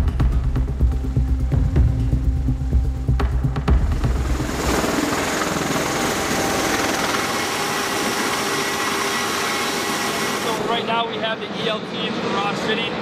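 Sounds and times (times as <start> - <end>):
turbine engine whine: 0.6 - 13.0
rush of spinning rotors: 4.1 - 10.7.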